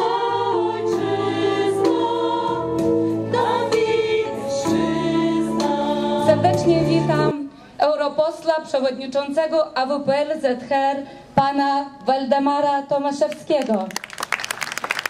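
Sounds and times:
women's choir singing in harmony: 0.0s - 7.3s.

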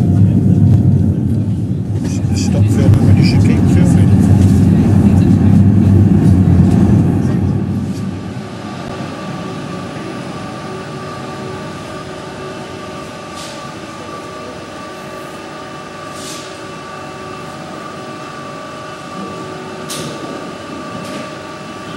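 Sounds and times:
funicular railway car humming: 0.0s - 21.9s.

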